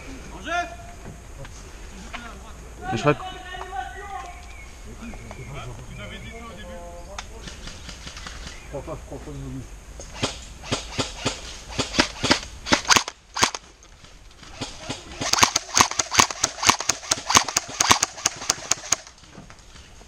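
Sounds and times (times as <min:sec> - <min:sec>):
airsoft rifle shots: 0:10.1 - 0:13.7, 0:14.4 - 0:19.2.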